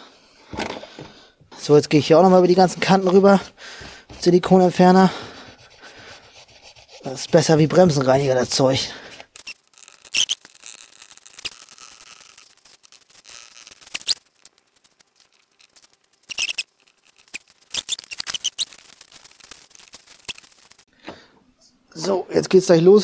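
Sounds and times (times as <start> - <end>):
cloth rubbing and squeaking: 9.3 - 20.9.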